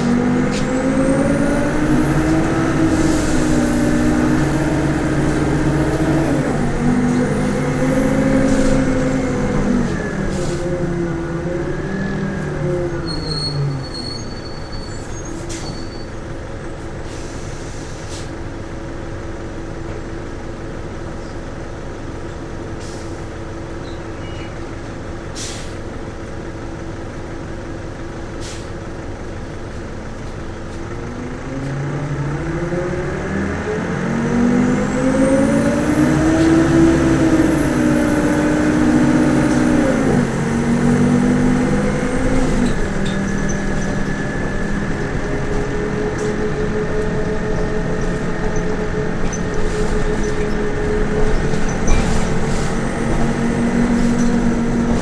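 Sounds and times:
bus diesel engine: 0.0s - 55.0s
short air hisses: 25.4s - 25.8s, 28.4s - 28.8s.

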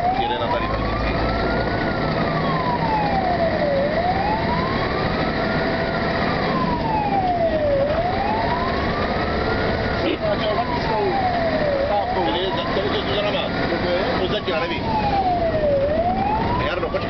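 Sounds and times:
fire engine siren wailing: 0.0s - 17.0s
road noise: 0.0s - 17.0s
truck engine: 0.0s - 17.0s.

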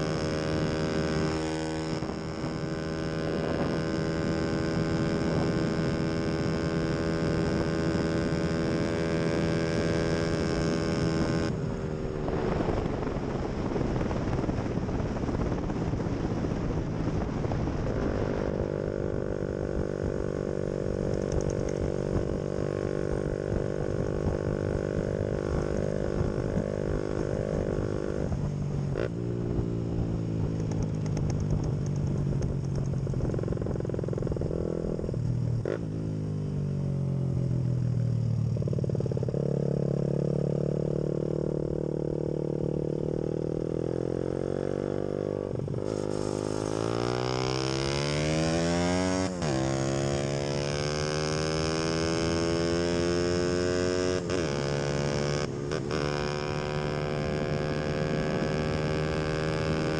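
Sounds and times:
wind noise on microphone: 0.0s - 35.7s
motorcycle engine running: 0.0s - 59.9s.

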